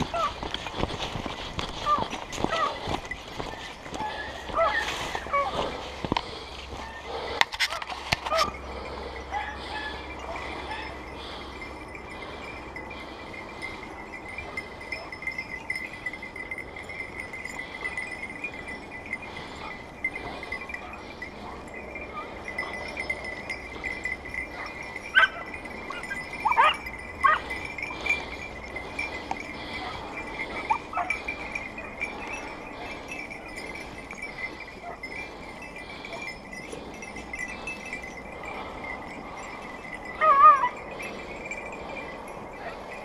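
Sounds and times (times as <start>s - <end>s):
dog collar bell tinkling: 0.0s - 43.0s
dog yelping: 1.8s - 2.8s, 4.0s - 5.6s, 7.7s - 8.6s, 24.6s - 27.5s, 40.2s - 40.8s.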